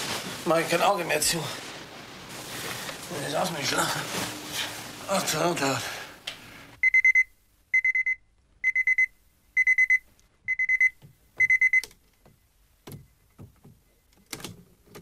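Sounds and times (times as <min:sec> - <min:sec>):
alarm clock beeping: 0:06.8 - 0:11.8.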